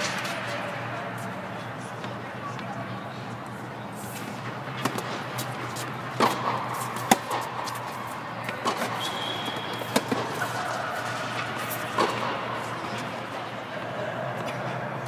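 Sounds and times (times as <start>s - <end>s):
tennis balls struck and bouncing: 4.1s - 13.2s
shoe squeak: 8.9s - 10.9s.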